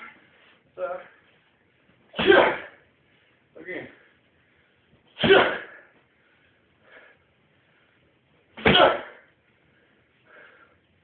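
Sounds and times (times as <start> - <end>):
strike smacking a pad: 5.2 - 5.7.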